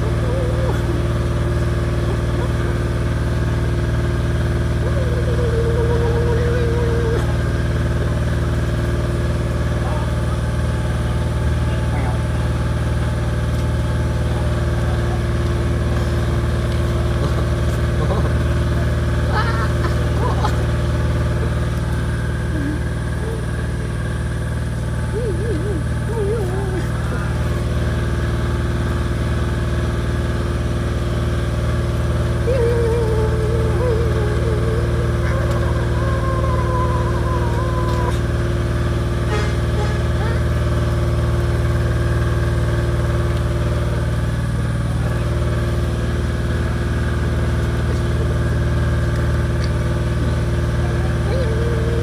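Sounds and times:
engine idling: 0.0 - 52.0
wavering high tone: 32.5 - 38.3.

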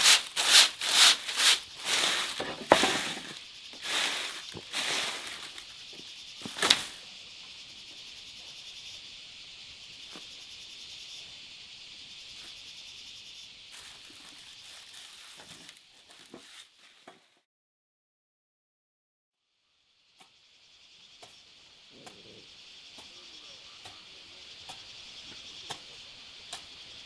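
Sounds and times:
rustling scrapes: 0.0 - 5.6, 13.8 - 17.1
steady high hiss: 0.0 - 16.8, 19.4 - 27.0.

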